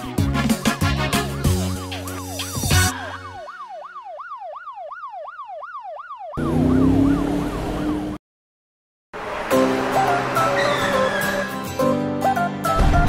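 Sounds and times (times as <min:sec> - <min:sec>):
cartoon police siren wailing: 0:01.4 - 0:08.2, 0:10.3 - 0:11.6.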